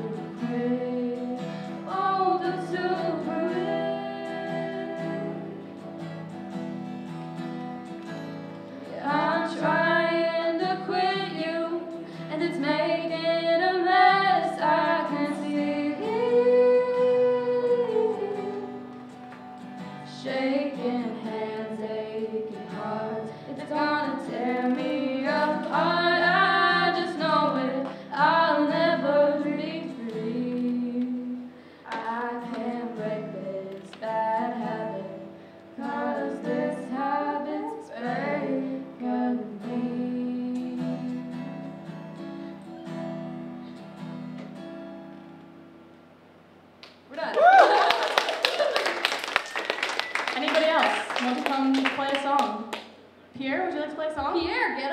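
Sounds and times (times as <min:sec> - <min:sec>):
person singing: 0:00.0 - 0:05.5, 0:08.8 - 0:18.8, 0:20.2 - 0:35.2, 0:35.8 - 0:41.3
guitar chords: 0:00.0 - 0:46.1.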